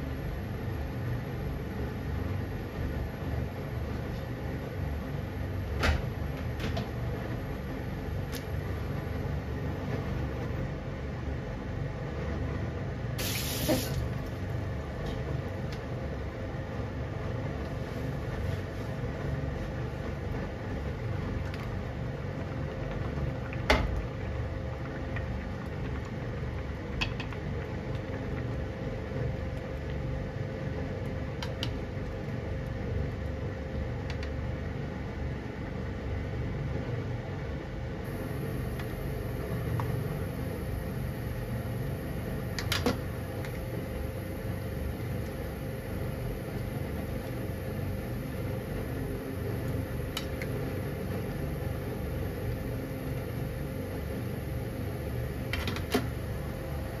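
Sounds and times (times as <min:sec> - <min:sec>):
fan-like hum: 0:00.0 - 0:57.0
stew simmering: 0:17.5 - 0:35.3.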